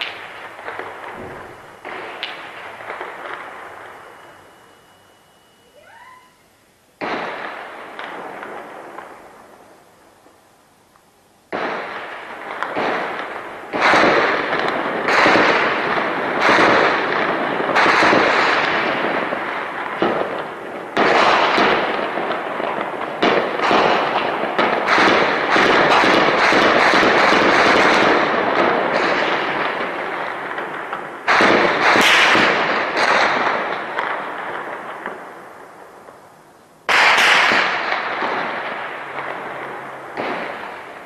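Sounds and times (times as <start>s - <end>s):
gunshots with long echoes: 7.0s - 9.6s, 11.5s - 36.2s, 36.9s - 41.0s.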